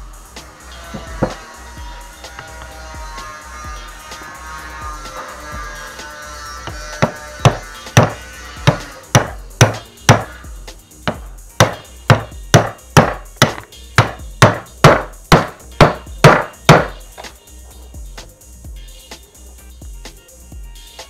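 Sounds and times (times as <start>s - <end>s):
hammer blows ringing: 0.9s - 1.4s, 6.7s - 10.3s, 11.1s - 17.0s.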